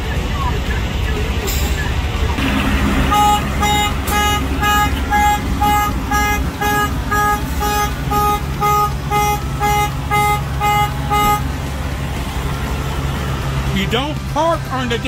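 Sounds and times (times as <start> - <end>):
trucks idling: 0.0 - 15.0
buzzy electronic beeps: 2.4 - 11.4.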